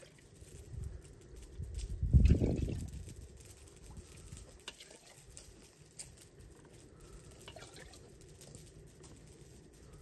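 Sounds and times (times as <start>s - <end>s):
faint water sounds: 3.8s - 5.5s, 7.4s - 8.1s.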